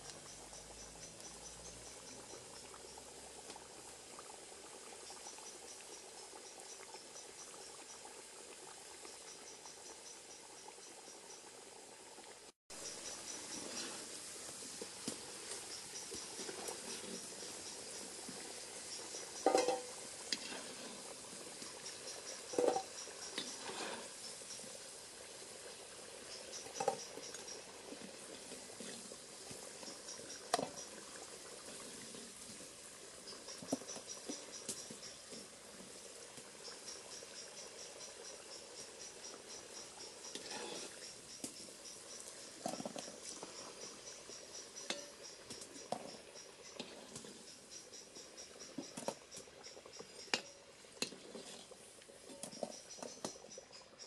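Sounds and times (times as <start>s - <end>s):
crickets chirping: 0.0s - 3.9s, 12.7s - 32.6s, 33.2s - 54.0s
potatoes sizzling in oil: 0.0s - 54.0s
metal skimmer clanking on pot: 19.4s - 20.0s, 22.5s - 23.5s.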